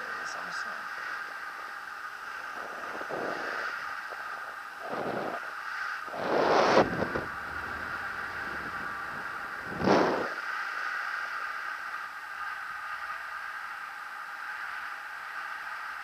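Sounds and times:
wind buffeting microphone: 0.0 - 11.3.

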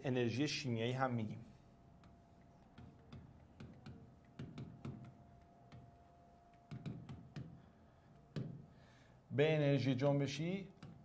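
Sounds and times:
faint steady hum: 0.0 - 11.0
stylus tapping on screen: 2.0 - 7.6.

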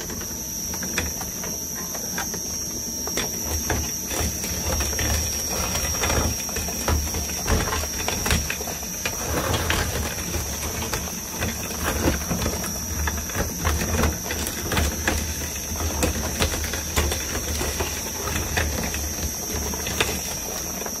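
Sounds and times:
shredder motor hum: 0.0 - 21.0
block cracking and grinding: 3.5 - 21.0.

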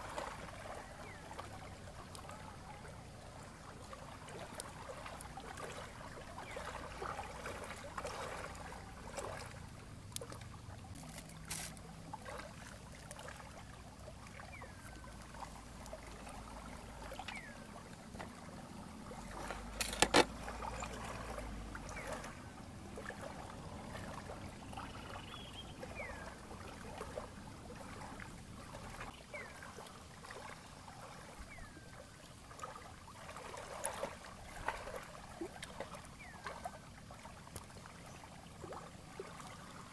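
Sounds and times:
water lapping at shore: 0.0 - 39.9
bird chirps: 24.7 - 26.3.

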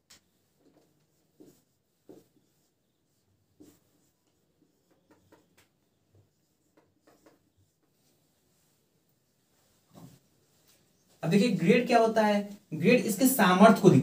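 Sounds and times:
marker scratching on whiteboard: 0.1 - 8.8.

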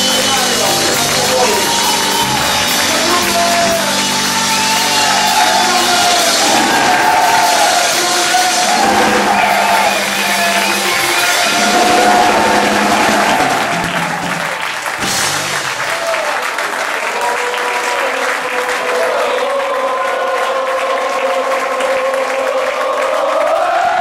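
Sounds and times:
rock band playing live: 0.0 - 16.0
audience cheering and clapping: 0.0 - 24.0.

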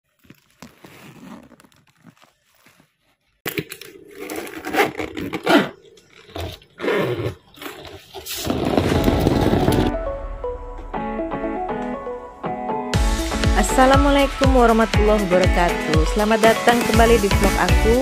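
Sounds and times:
suitcase zipper: 0.6 - 2.7, 4.0 - 9.9
suitcase scraping and rattling: 4.2 - 10.0.

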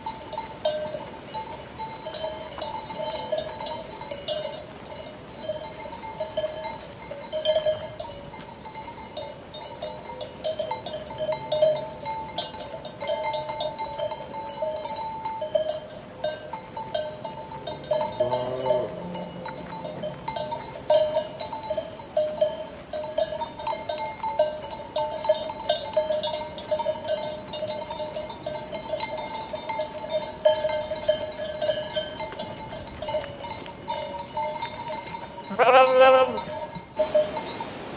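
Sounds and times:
sheep bells clanking: 0.0 - 37.8
sheep bleating: 35.5 - 36.5.

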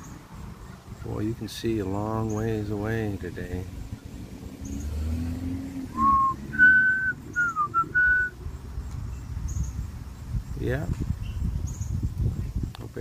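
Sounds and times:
person whistling a tune: 6.0 - 8.3.

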